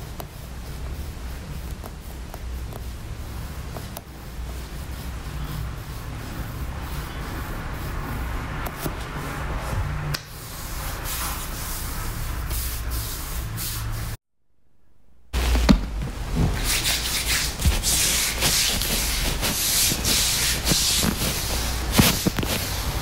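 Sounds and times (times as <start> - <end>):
hands rubbing oiled skin: 15.4 - 23.0.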